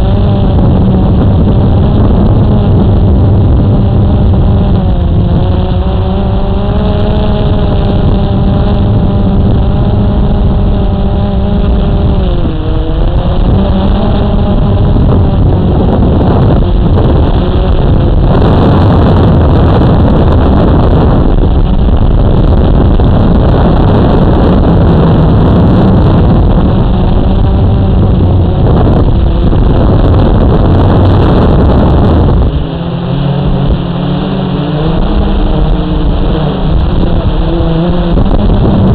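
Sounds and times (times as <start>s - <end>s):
drone motors buzzing: 0.0s - 38.9s
rushing noise: 0.0s - 38.9s.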